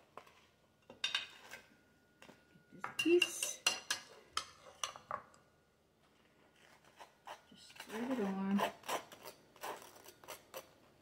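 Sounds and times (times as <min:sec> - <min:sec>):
knife clinking on ceramic: 0:02.2 - 0:05.3.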